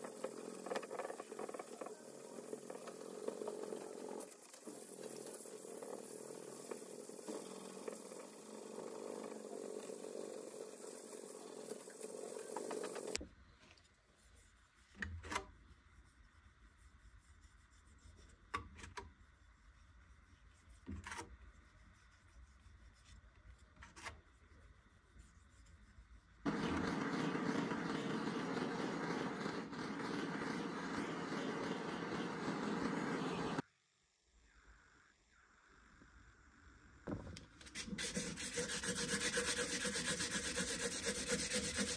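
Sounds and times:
sandpaper sanding wood: 0.0 - 13.2, 25.2 - 33.6, 37.7 - 41.9
gas blowtorch burning: 26.5 - 33.6.

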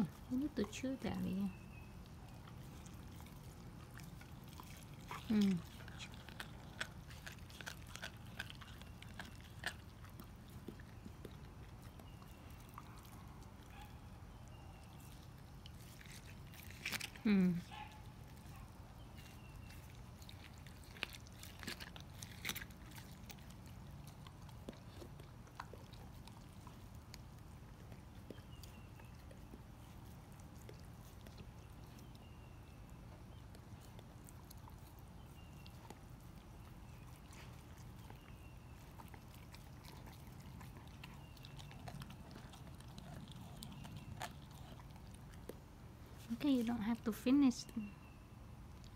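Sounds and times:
dog chewing fish: 0.0 - 47.4
wet crunches: 15.6 - 17.7, 19.2 - 24.9
teeth clicking: 39.0 - 45.6.

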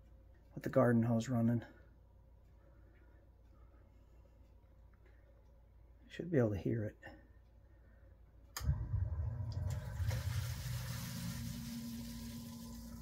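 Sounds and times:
sump pump motor humming: 8.6 - 13.0
water rushing through pump: 8.6 - 13.0.

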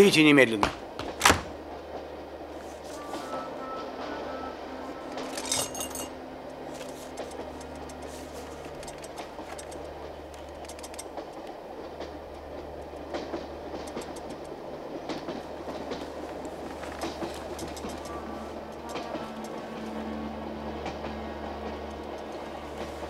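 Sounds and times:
train rumbling: 0.0 - 23.0
wheels clattering over rails: 5.0 - 23.0.

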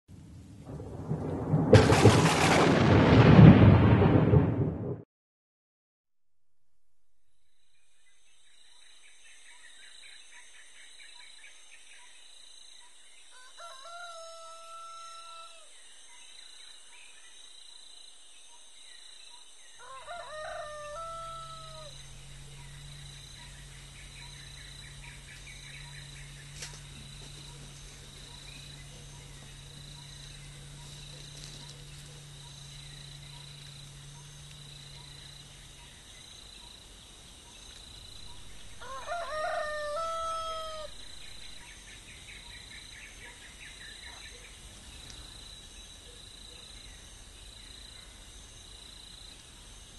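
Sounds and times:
rooster crowing: 13.3 - 15.7, 19.8 - 22.9, 38.2 - 41.6
faint low hum: 20.0 - 49.9.

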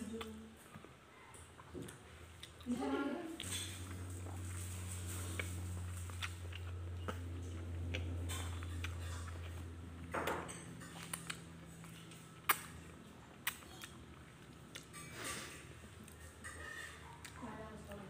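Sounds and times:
low hum: 2.8 - 14.9.

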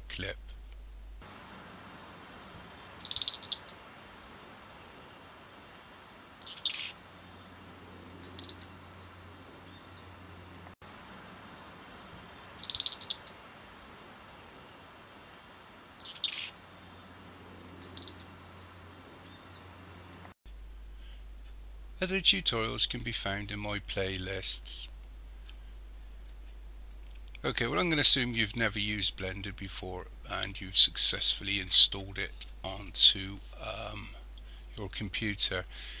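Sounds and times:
faint steady hiss: 0.0 - 36.0
robin calling: 1.2 - 20.3.

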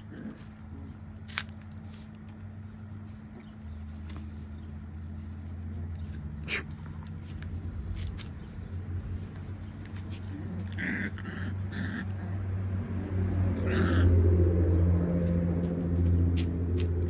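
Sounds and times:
puppies mouthing and scuffling: 0.0 - 12.5
steady low hum: 0.0 - 17.0.

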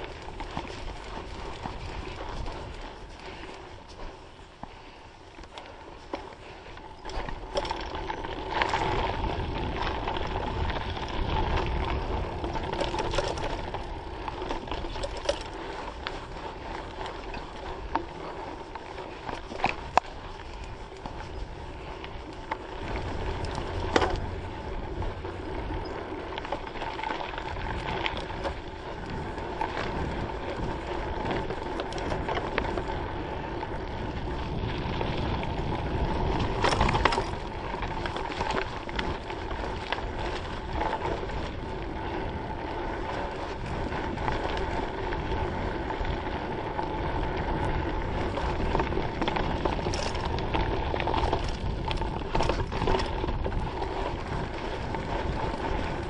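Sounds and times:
bike rattling: 0.0 - 56.0
tyres rolling on dirt: 0.0 - 56.0
wind on microphone: 19.4 - 56.0.

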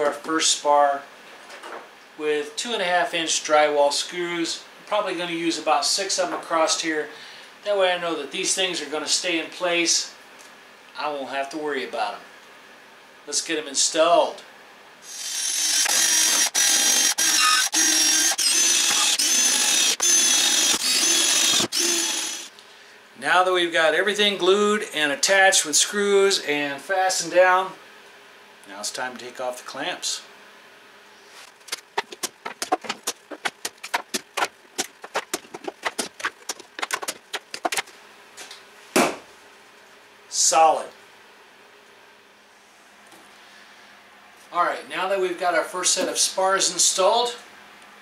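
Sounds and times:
cordless drill driving into wood: 15.1 - 22.5.

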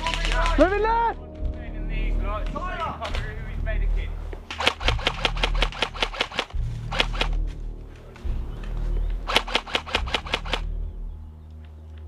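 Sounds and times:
airsoft rifle shots: 4.5 - 7.4, 9.3 - 10.7.

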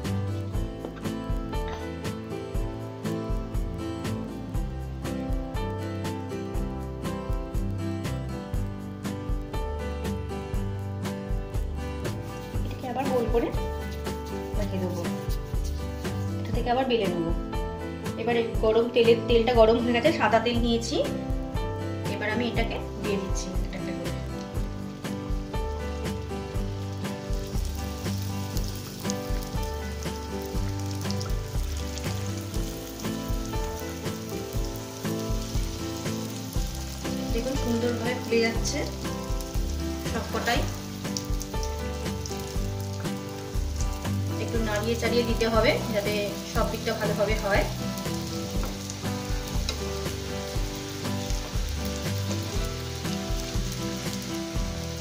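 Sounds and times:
background music: 0.0 - 55.0
dough deep-frying in hot oil: 24.5 - 55.0.

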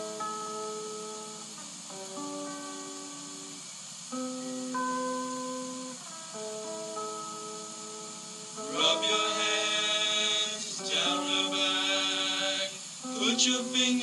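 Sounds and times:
song from cassette stereo: 0.0 - 14.0
voices singing: 8.6 - 14.0.

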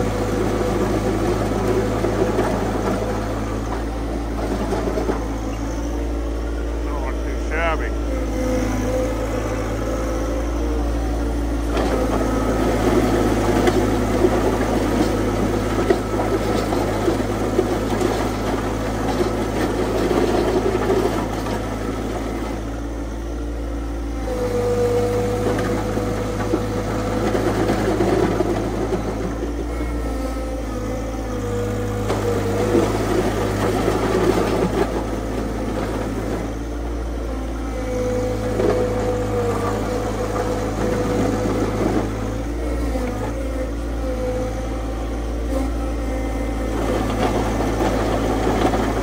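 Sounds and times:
tractor engine under load: 0.0 - 49.0
steady high whine: 5.0 - 11.7.

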